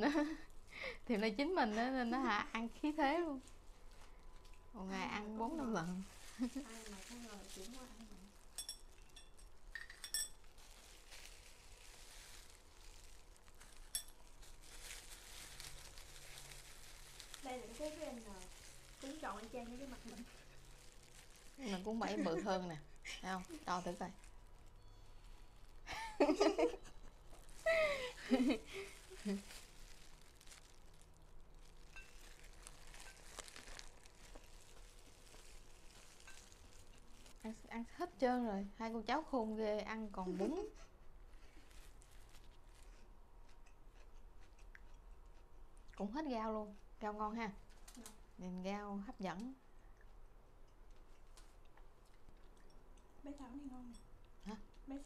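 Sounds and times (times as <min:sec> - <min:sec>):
crinkles of plastic gloves: 0:00.0 - 0:43.4, 0:46.2 - 0:49.6
metal chopsticks clinking on tray: 0:08.6 - 0:10.4
faint rustling: 0:27.3 - 0:37.7.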